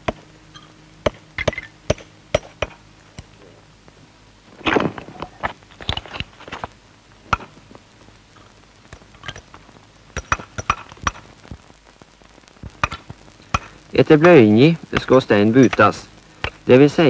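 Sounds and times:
hammer striking stone: 1.1s - 2.8s.

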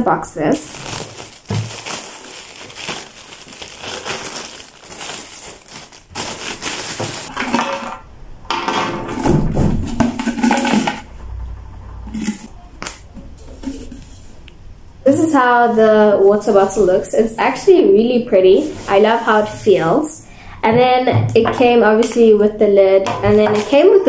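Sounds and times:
plastic bag crinkling and tearing: 0.5s - 8.0s
small plastic parts rattling: 0.7s - 8.0s.

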